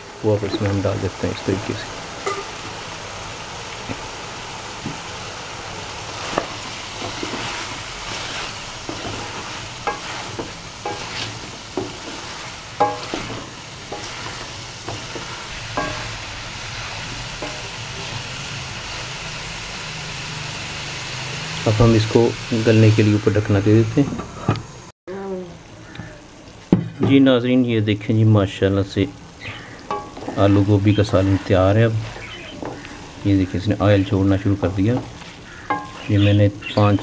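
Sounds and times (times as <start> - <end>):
frying sizzle: 0.0 - 24.9, 25.6 - 37.0
spatula scraping and knocking pan: 6.2 - 18.2, 29.8 - 33.2, 34.5 - 37.0.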